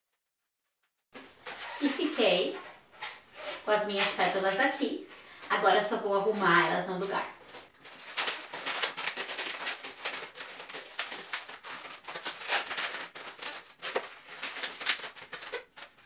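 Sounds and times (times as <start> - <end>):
balloons rubbing and squeaking: 1.2 - 5.0, 7.4 - 16.0.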